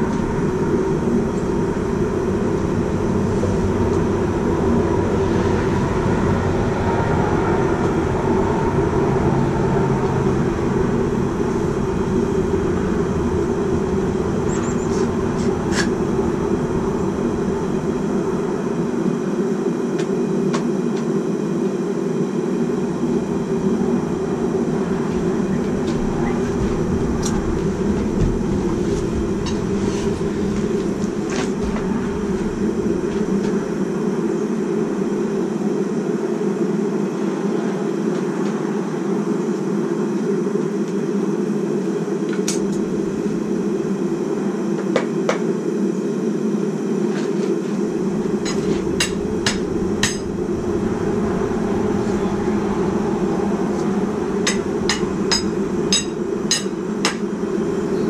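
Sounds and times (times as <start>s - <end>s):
steady low noise: 0.0s - 58.0s
hammer striking metal on anvil: 48.5s - 50.3s, 54.5s - 57.2s.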